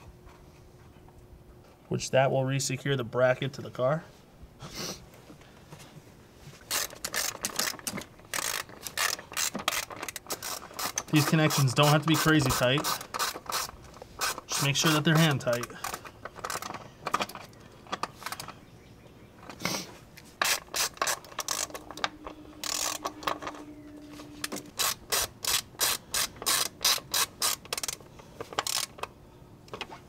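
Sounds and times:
hand ratchet clicking: 6.7s - 17.3s, 20.4s - 23.6s, 24.4s - 29.1s.

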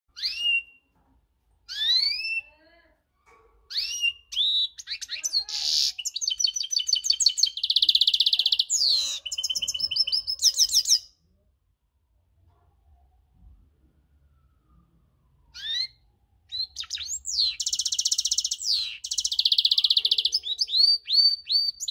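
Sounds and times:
goldfinch singing: 16.5s - 21.9s.

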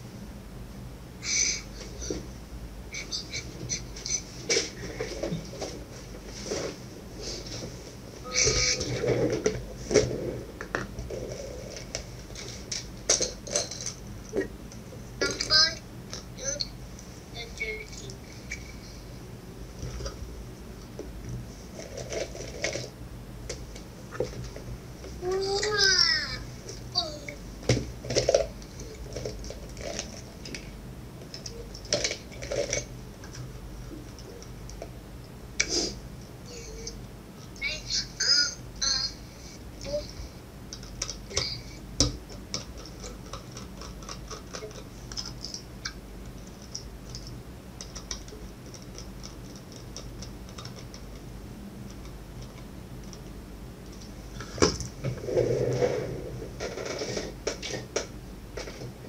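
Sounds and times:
small parts clicking and rattling: 42.3s - 45.7s.

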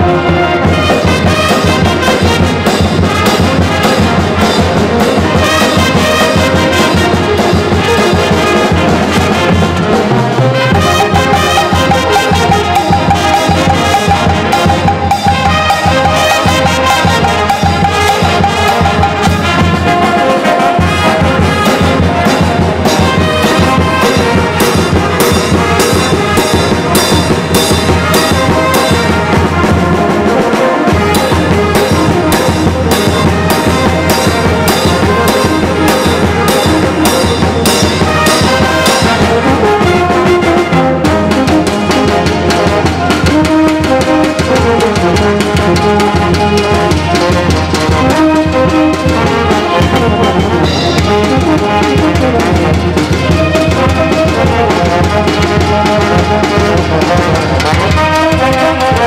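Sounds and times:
brass band playing: 0.0s - 59.0s.

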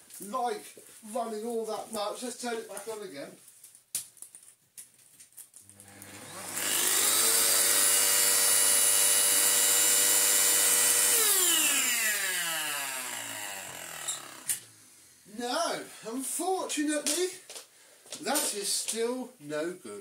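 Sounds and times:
vacuum cleaner motor running: 5.8s - 14.7s.

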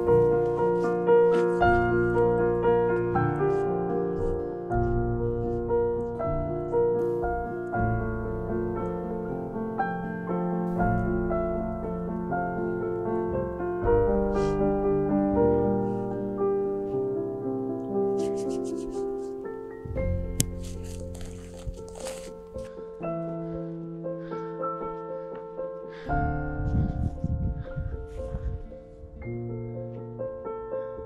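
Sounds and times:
piano background music: 0.0s - 31.0s
low bass: 19.8s - 22.4s, 26.2s - 29.4s.

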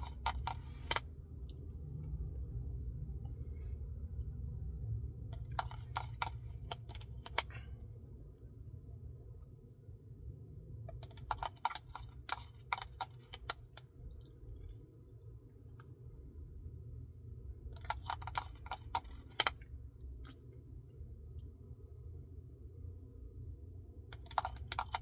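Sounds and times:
plastic spoon scraping cup: 0.0s - 1.1s, 5.4s - 7.6s, 10.9s - 13.8s, 17.8s - 19.6s, 24.2s - 25.0s
steady low hum: 0.0s - 25.0s.

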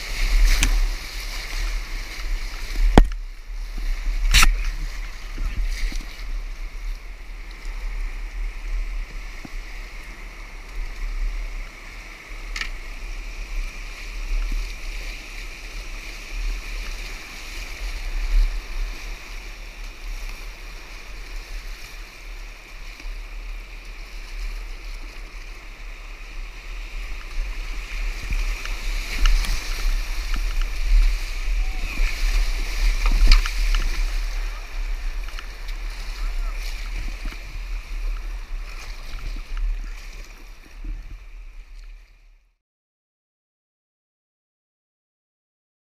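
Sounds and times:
kayak splashing: 0.0s - 42.4s
whitewater rushing over rocks: 25.0s - 40.0s.

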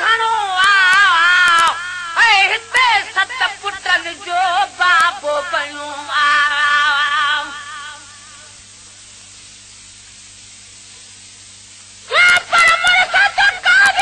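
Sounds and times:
man singing devotional song: 0.0s - 8.6s
steady low hiss and hum: 0.0s - 14.0s.

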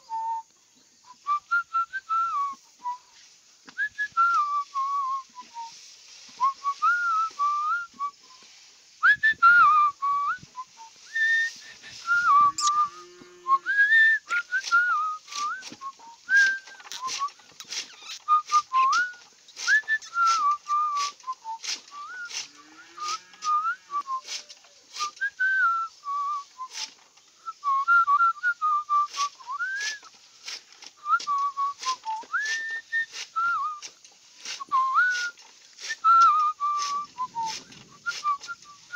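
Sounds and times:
person whistling a tune: 0.0s - 30.2s, 31.0s - 33.9s, 34.6s - 38.9s
blade chopping grass clicks: 14.6s - 20.4s.

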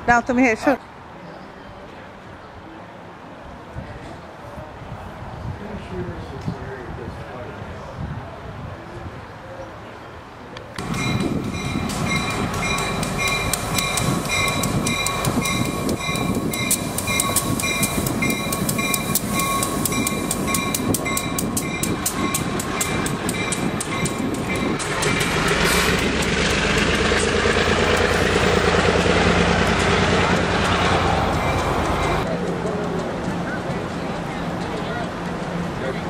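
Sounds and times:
train warning bell ringing: 10.8s - 25.7s, 28.0s - 32.3s
train rumble: 10.8s - 36.0s
wheels rolling on rails: 10.8s - 36.0s.

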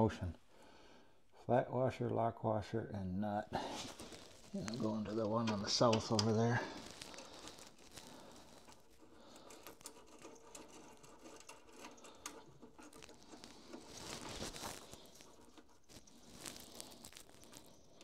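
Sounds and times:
small clicks and rustling of hands: 3.8s - 18.0s.

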